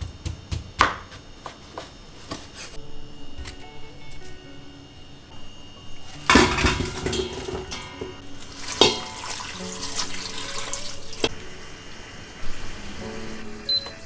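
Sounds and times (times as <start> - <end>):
vegetables tipped into metal pot: 6.3 - 8.1
water pouring into pot: 6.4 - 13.0.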